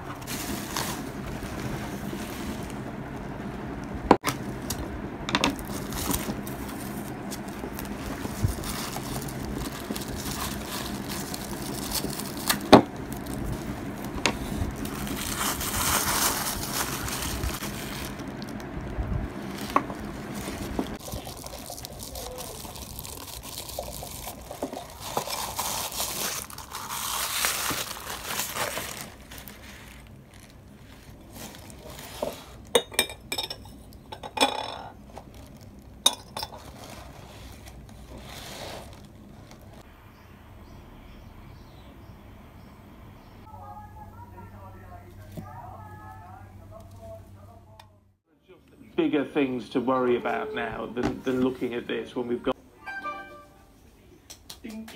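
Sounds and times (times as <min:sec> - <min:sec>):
paper and plastic wrapping rustling: 0:00.0 - 0:03.2, 0:05.4 - 0:32.8, 0:35.0 - 0:39.8.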